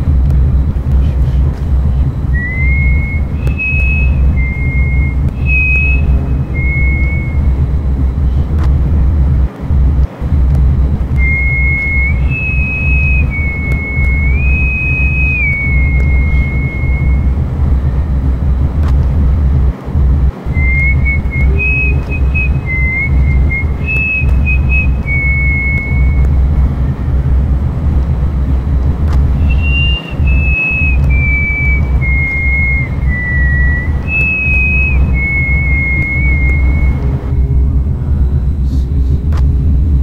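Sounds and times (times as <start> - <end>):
loud steady low rumble: 0.0 - 40.0
high whistle-like tune: 2.2 - 8.2, 11.1 - 18.5, 20.5 - 27.1, 29.2 - 37.8.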